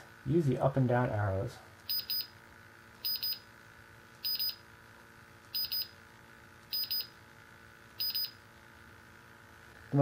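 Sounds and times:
high keypad double beeps: 1.9 - 2.3, 3.0 - 3.4, 4.2 - 4.6, 5.6 - 5.9, 6.7 - 7.1, 8.0 - 8.4.

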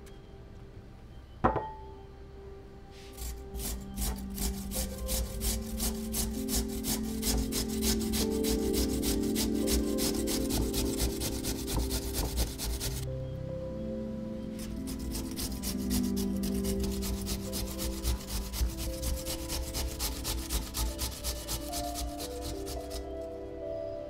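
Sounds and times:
potato rasped on metal grater: 3.1 - 13.0, 14.6 - 23.2.

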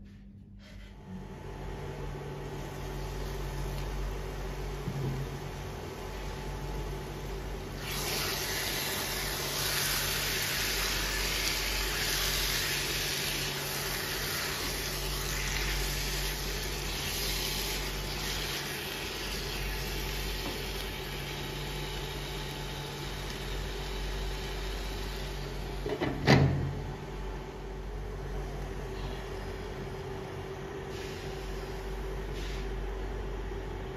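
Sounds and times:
cooktop fan hum: 0.0 - 33.9
chicken sizzling in a pot: 2.6 - 25.8.

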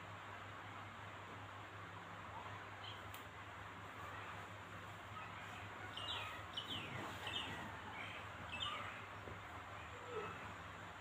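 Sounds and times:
small birds chirping: 2.3 - 11.0.

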